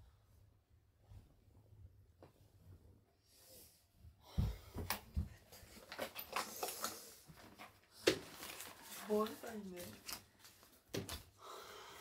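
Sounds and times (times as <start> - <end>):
papers and objects handled: 4.8 - 11.4.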